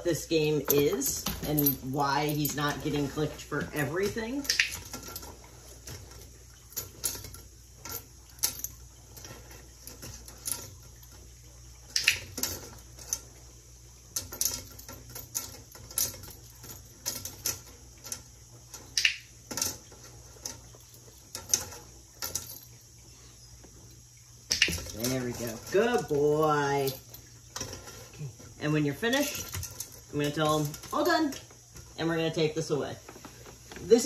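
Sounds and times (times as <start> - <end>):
treats clattering into metal colander: 0.0 - 13.4, 14.1 - 22.8, 24.5 - 34.0.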